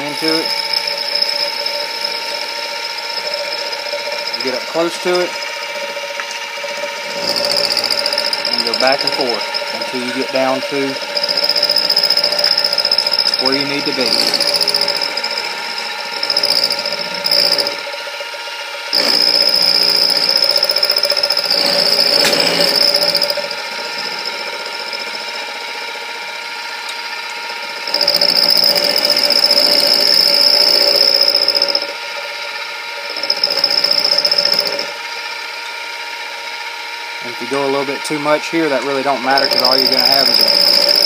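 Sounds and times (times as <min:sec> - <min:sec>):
end mill cutting with high whine: 0:00.0 - 0:41.0
milling machine running: 0:00.0 - 0:41.0.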